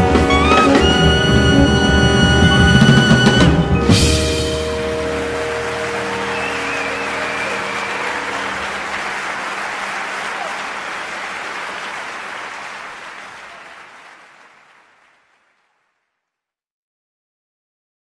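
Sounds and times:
background music: 0.0s - 9.6s
crowd cheering: 0.0s - 16.2s
crowd applause: 0.0s - 16.3s.

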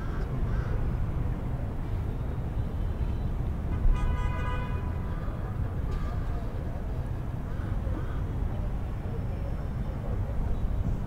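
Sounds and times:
city traffic rumble: 0.0s - 11.0s
vehicle horn: 3.7s - 5.0s.

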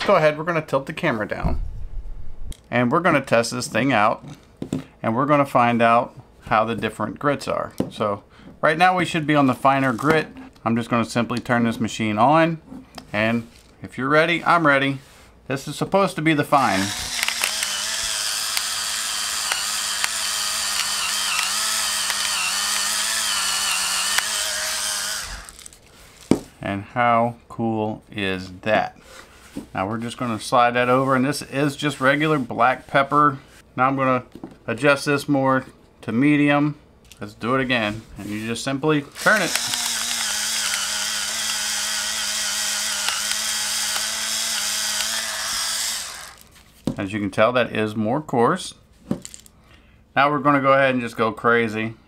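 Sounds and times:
electric pepper grinder motor: 16.6s - 25.8s, 39.1s - 46.5s
sharp clicks: 16.9s - 18.8s, 19.4s - 25.7s, 39.2s - 41.6s.

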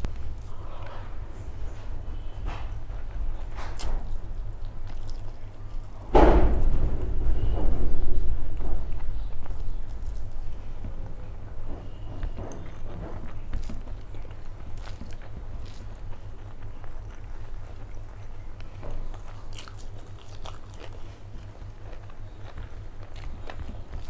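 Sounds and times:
person chewing with wet mouth sounds: 0.0s - 6.1s, 8.6s - 24.0s
low steady hum: 0.0s - 24.0s
fingers mixing rice on a plate: 8.9s - 24.0s.

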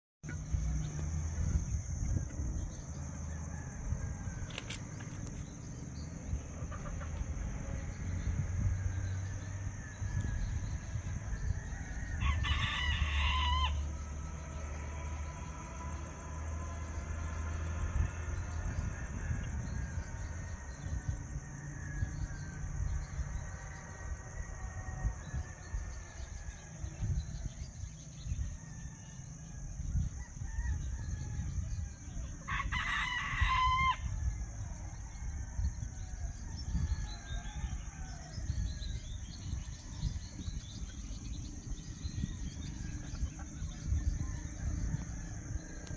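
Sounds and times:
low rumble: 0.2s - 12.4s
distant roosters crowing: 0.2s - 45.9s
rooster crowing: 2.9s - 4.9s, 8.2s - 40.2s, 41.8s - 45.9s.

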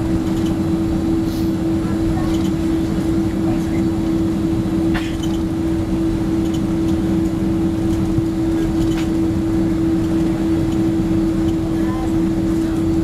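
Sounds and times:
jet engine and airflow rumble: 0.0s - 13.0s
low drone: 0.0s - 13.0s.

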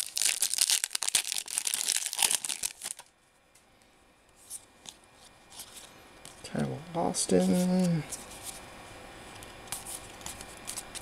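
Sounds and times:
card pack wrapper tearing: 0.0s - 3.1s
faint rustles of cards handled: 4.3s - 11.0s.

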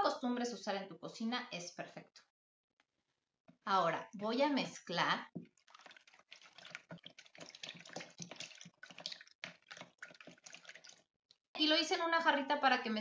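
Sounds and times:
liquid sloshing in jug: 5.4s - 11.1s.

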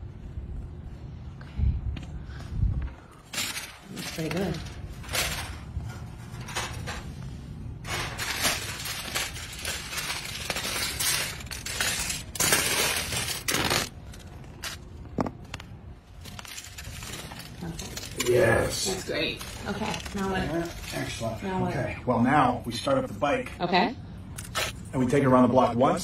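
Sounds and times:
aluminium foil crinkling: 3.3s - 7.2s, 7.8s - 21.6s.

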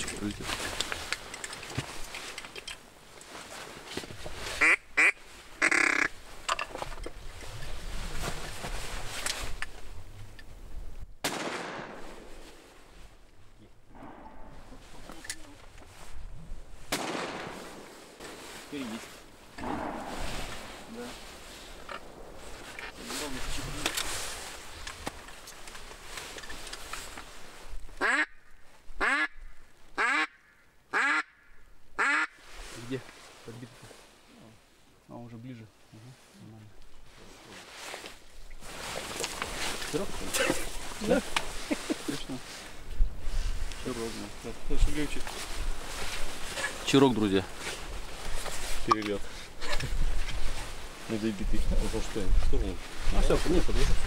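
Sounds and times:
duck call quacking: 4.6s - 6.2s, 28.0s - 28.4s, 29.0s - 29.4s, 30.0s - 31.4s, 32.0s - 32.4s
wind noise: 42.7s - 46.6s, 49.5s - 54.0s.

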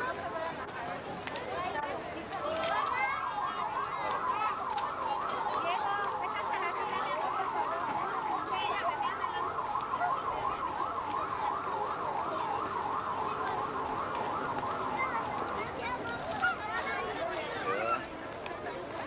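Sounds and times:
crowd chatter: 0.0s - 19.0s
electronic siren wailing: 2.7s - 15.8s.

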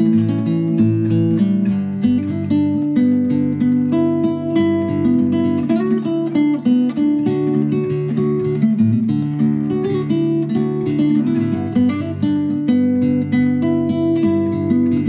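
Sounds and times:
acoustic guitar music: 0.0s - 15.0s.

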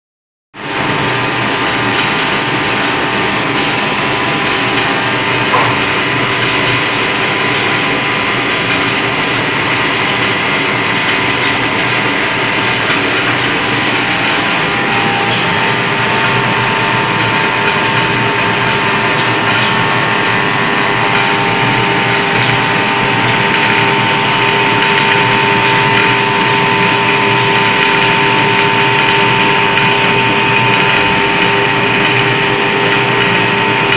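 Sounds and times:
machine whirring and clattering: 0.6s - 33.9s
steady tones: 1.3s - 25.6s.

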